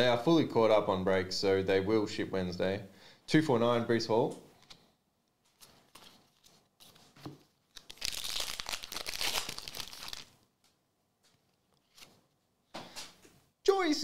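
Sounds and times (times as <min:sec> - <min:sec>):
foil wrapper tearing and crinkling: 0:07.7 - 0:10.4.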